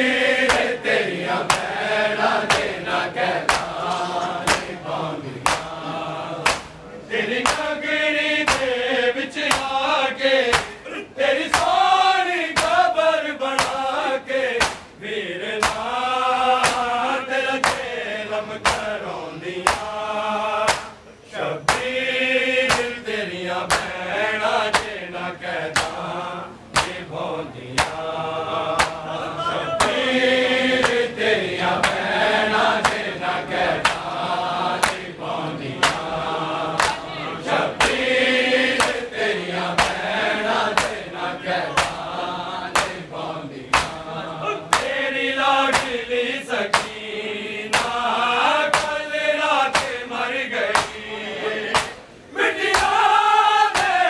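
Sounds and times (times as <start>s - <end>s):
men chanting a lament: 0.0s - 54.0s
hands slapping chests: 0.4s - 0.8s, 1.4s - 1.8s, 2.4s - 2.8s, 3.4s - 4.8s, 5.4s - 5.8s, 6.4s - 6.8s, 7.4s - 7.8s, 8.4s - 8.8s, 9.5s - 9.8s, 10.5s - 10.8s, 11.5s - 11.8s, 12.6s - 12.8s, 13.5s - 13.8s, 14.6s - 15.0s, 15.6s - 15.9s, 16.6s - 17.0s, 17.6s - 17.9s, 18.6s - 19.0s, 19.6s - 20.0s, 20.6s - 21.0s, 21.7s - 21.9s, 22.7s - 23.0s, 23.7s - 24.0s, 24.7s - 25.0s, 25.7s - 26.0s, 26.7s - 27.1s, 27.7s - 28.1s, 28.8s - 29.1s, 29.8s - 30.0s, 30.8s - 31.1s, 31.8s - 32.1s, 32.8s - 33.1s, 33.7s - 34.2s, 34.8s - 36.1s, 36.8s - 37.0s, 37.8s - 38.1s, 38.8s - 39.1s, 39.8s - 40.1s, 40.7s - 41.1s, 41.7s - 43.1s, 43.7s - 44.0s, 44.7s - 45.0s, 45.7s - 46.0s, 46.7s - 47.0s, 47.7s - 48.0s, 48.7s - 49.0s, 49.7s - 50.0s, 50.7s - 51.0s, 51.7s - 52.0s, 52.7s - 53.0s, 53.7s - 54.0s.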